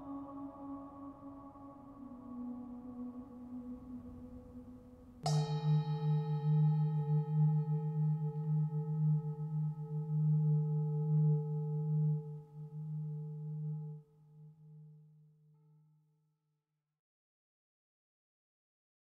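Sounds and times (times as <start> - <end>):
singing bowl ringing: 5.2 - 14.0.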